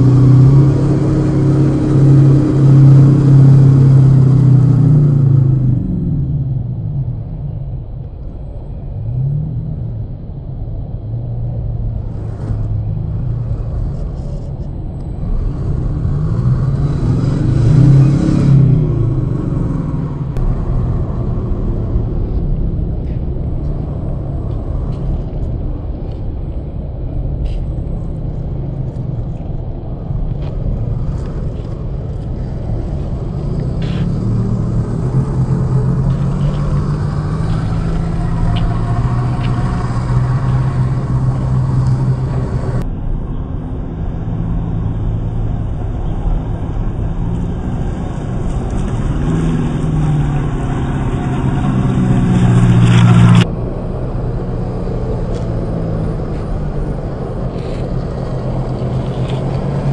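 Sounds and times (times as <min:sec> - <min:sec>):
stones clicking under tyres: 0:30.2 - 0:42.9, 0:56.3 - 0:59.9.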